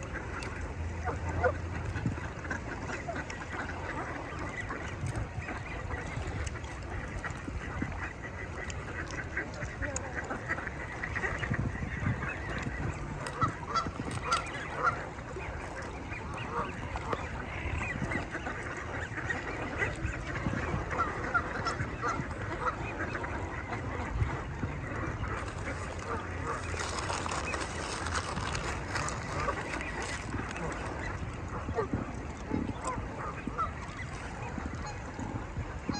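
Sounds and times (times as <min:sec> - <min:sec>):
geese honking: 0:00.0 - 0:35.9
steady low rumble: 0:00.0 - 0:35.9.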